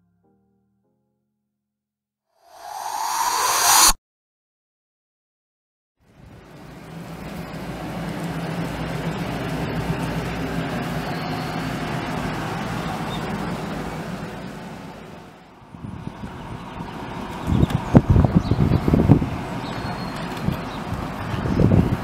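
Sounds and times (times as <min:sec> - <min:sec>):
vehicle engine and tyre hum: 0:02.5 - 0:04.0, 0:06.1 - 0:22.0.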